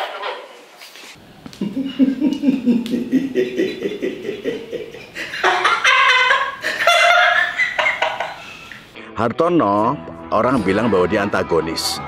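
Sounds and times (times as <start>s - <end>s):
man laughing: 1.6s - 8.6s
higher-pitched laughter: 1.6s - 8.7s.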